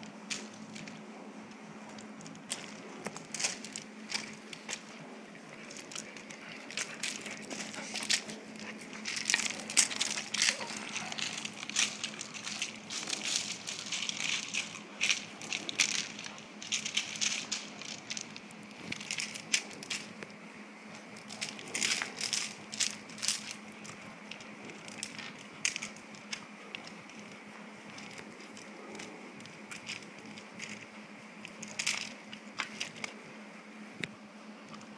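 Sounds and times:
paws shifting on gravel: 0.1 - 33.4
dogs scuffling over rope toy: 2.3 - 20.2.

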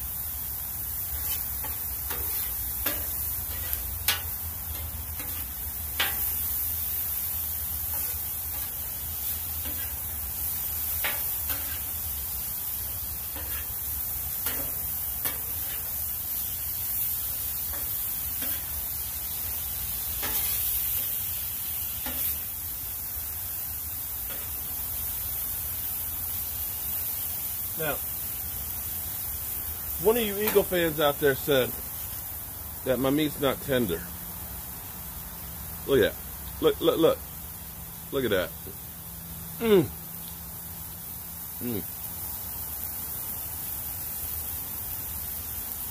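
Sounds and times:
meat sizzling on a griddle: 0.0 - 45.9
metal spatula scraping on steel: 1.2 - 7.0, 7.7 - 12.1, 13.2 - 16.1, 17.6 - 18.9, 20.1 - 21.2, 22.0 - 22.4.

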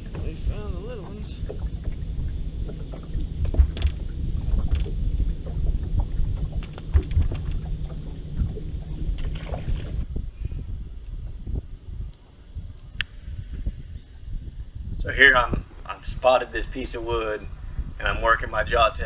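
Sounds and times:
water rumbling against hull: 0.0 - 19.0
small clicks and knocks: 3.4 - 4.0, 6.5 - 7.7.

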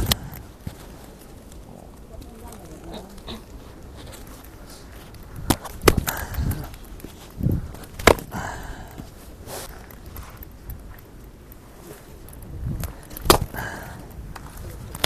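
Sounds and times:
hatchet chopping wood: 5.4 - 6.6, 8.0 - 8.4, 13.1 - 13.6.

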